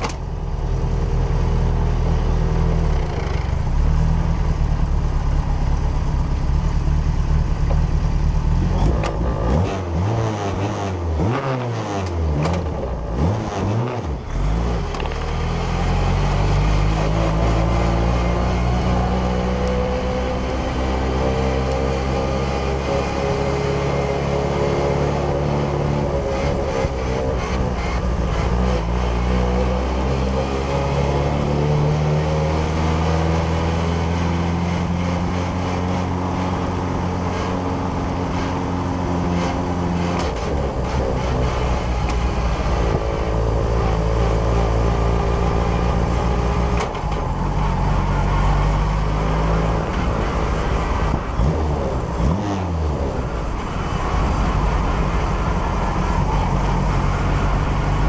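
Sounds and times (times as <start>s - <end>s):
car engine running: 0.0s - 10.1s.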